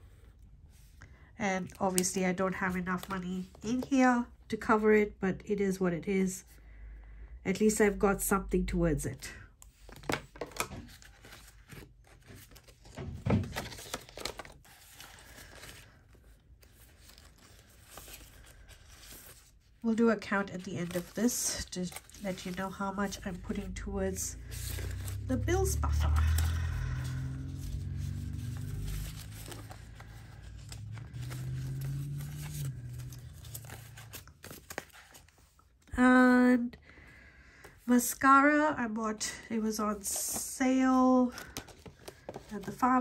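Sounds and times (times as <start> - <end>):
paper rustling: 9.7 - 35.6, 41.2 - 43.0
low steady hum: 13.6 - 41.5.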